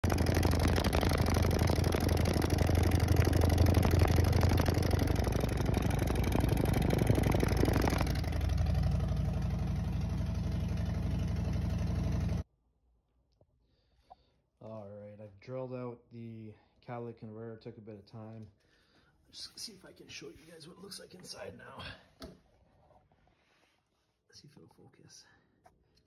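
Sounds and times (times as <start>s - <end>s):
motorcycle engine idling: 0.0s - 12.4s.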